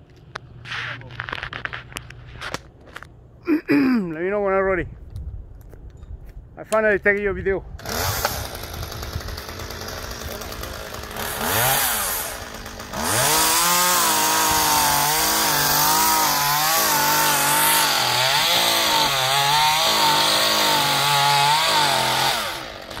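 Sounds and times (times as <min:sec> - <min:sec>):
chainsaw cutting wood: 0:07.8 - 0:23.0.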